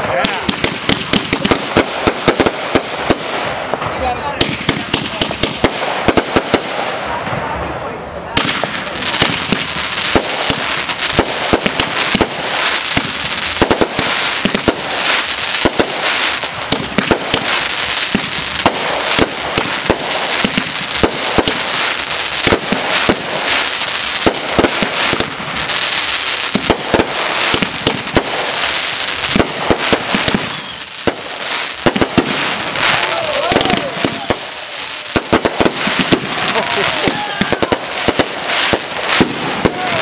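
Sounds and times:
fireworks bangs and crackle: 0:00.0 - 0:40.0
firework whistle falling in pitch: 0:30.4 - 0:32.1.

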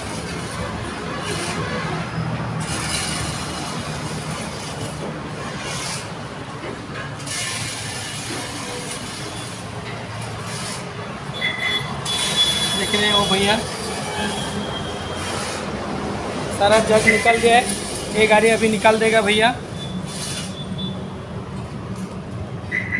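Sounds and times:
thin high squeal: 0:11.4 - 0:15.6, 0:16.9 - 0:18.1, 0:19.0 - 0:21.1.

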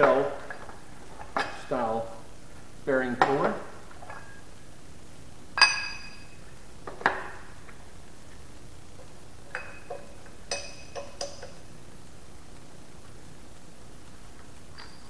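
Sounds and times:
metal clinks: 0:05.6 - 0:06.4, 0:09.5 - 0:11.6, 0:14.7 - 0:15.0.

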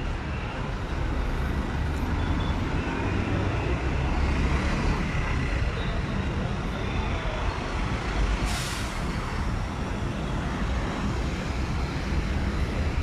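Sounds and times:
road traffic rumble: 0:00.0 - 0:13.0
short hiss: 0:08.5 - 0:09.0.

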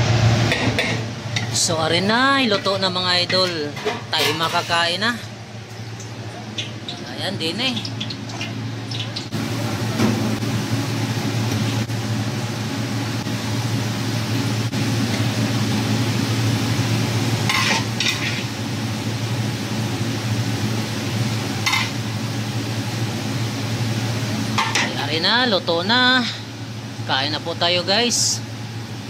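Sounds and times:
food sizzling in a pan: 0:05.4 - 0:25.1.

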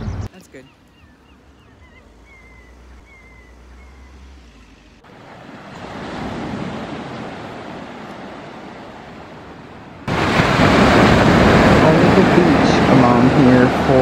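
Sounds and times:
sea waves washing on beach: 0:05.0 - 0:14.0.

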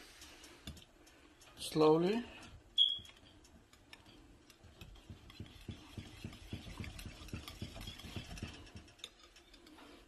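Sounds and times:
wire whisk tapping glass bowl: 0:03.0 - 0:09.2.

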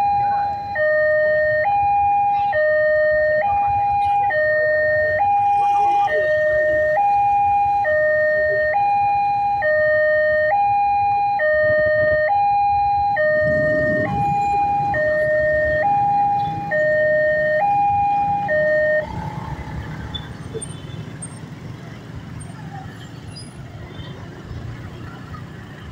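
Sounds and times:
two-tone crossing alarm: 0:00.0 - 0:20.4
motorcycles moving off: 0:11.4 - 0:25.9.

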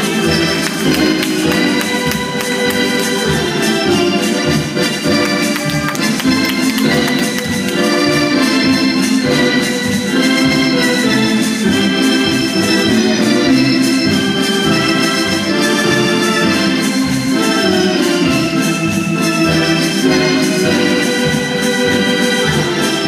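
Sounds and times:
organ music: 0:00.0 - 0:23.0.

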